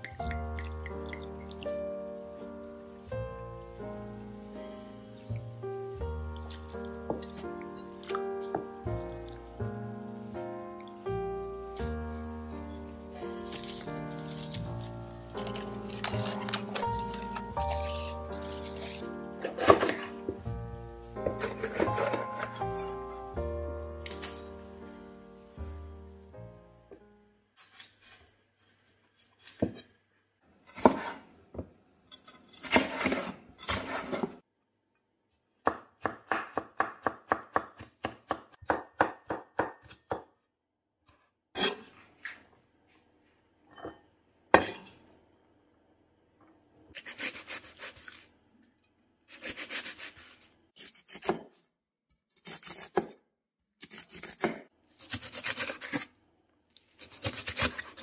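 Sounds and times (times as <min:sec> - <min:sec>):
crunchy knife strokes mincing: 0:13.3 - 0:20.1.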